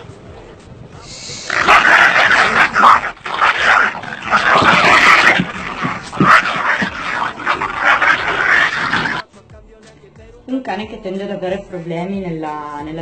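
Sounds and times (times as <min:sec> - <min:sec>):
dogs fighting: 0:01.3 - 0:09.2.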